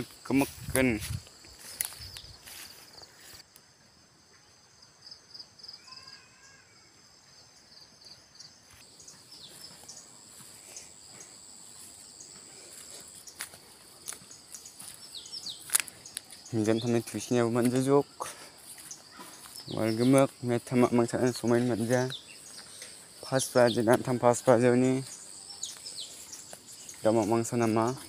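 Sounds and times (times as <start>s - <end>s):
footsteps in undergrowth: 0.0s - 3.5s, 8.6s - 28.0s
insects chirring: 0.0s - 28.0s.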